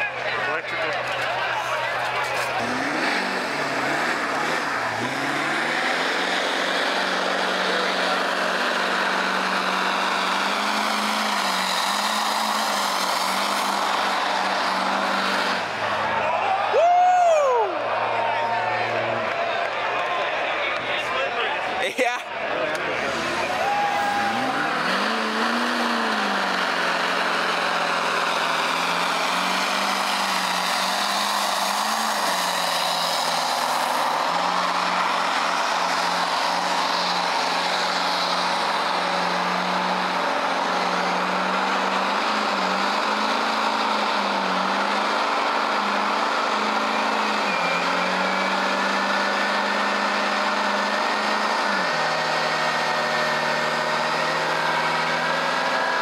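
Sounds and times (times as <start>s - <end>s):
diesel engine at high revs: 0.0s - 56.0s
tires spinning hiss: 2.5s - 16.0s.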